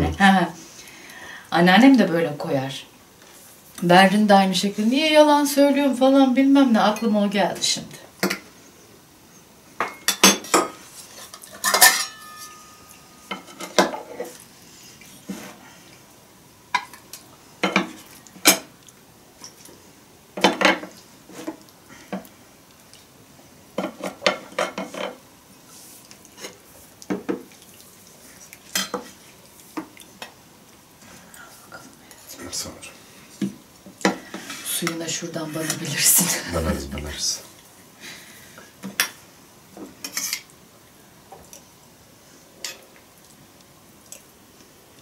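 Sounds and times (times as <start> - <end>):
spoons clinking on metal bowls: 11.5 - 13.5
metallic ring: 11.7 - 13.1.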